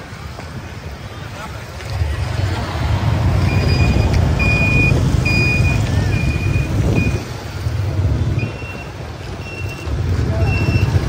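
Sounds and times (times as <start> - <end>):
low engine rumble: 0.6 - 11.0
reversing alarm beeping: 3.4 - 7.3.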